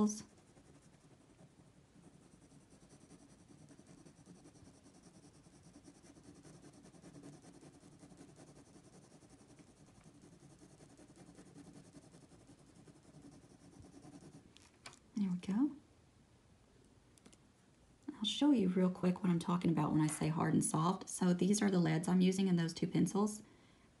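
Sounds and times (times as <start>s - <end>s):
pencil scratching on paper: 0.0s - 14.7s.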